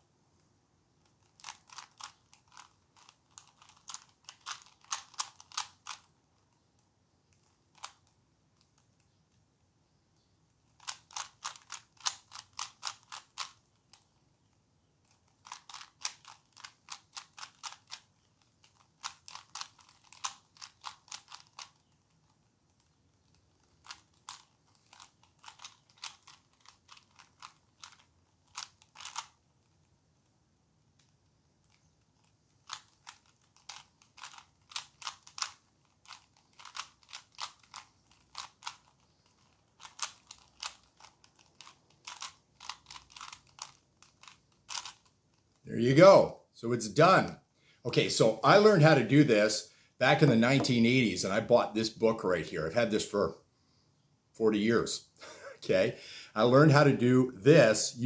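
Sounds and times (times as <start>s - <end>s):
puzzle cube clicking snaps: 1.2s - 6.1s.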